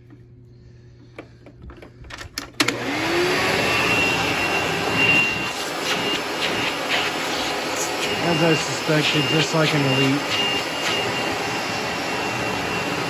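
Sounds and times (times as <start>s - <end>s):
vacuum cleaner motor running: 2.6s - 13.0s
thin air whistle: 3.8s - 6.8s, 8.0s - 13.0s.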